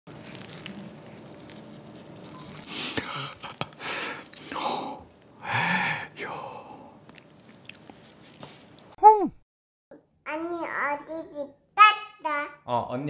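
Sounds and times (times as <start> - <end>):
wet squishing eating sounds: 0.1 - 5.0, 6.0 - 9.0.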